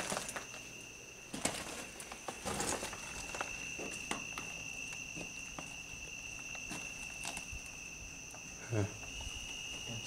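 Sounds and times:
footsteps: 0:01.3 - 0:07.7.

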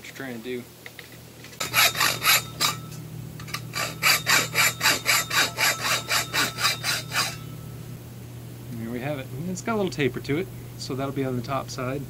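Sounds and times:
hacksaw cutting pipe: 0:01.6 - 0:07.5.

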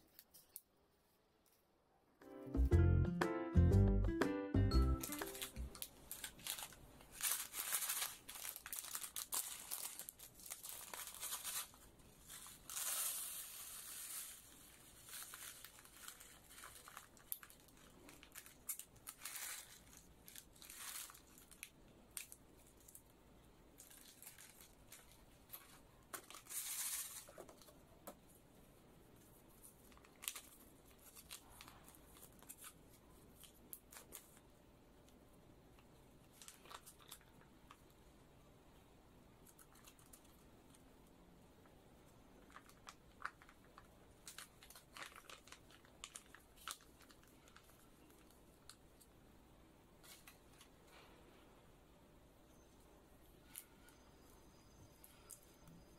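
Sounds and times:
plastic sachets torn and crinkled: 0:05.0 - 0:23.1, 0:23.8 - 0:27.7, 0:29.8 - 0:34.4, 0:36.2 - 0:37.8, 0:39.4 - 0:40.8, 0:42.4 - 0:49.1.

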